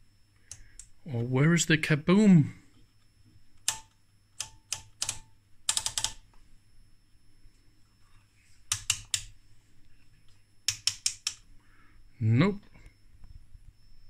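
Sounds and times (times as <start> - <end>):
rotary switches clicking: 3.6 - 6.2, 8.7 - 9.3, 10.7 - 11.4.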